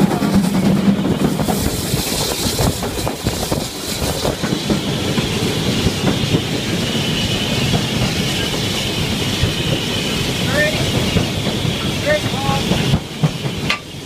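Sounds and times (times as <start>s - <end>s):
train wheels clattering over rail joints: 0.0s - 14.0s.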